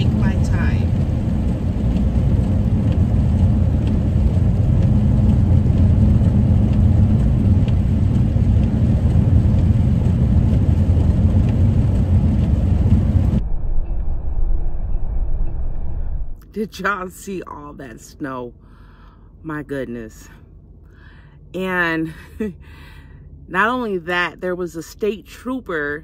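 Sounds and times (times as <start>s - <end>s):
in-cabin road and engine noise: 0.0s - 26.0s
faint light ticks: 1.4s - 12.6s.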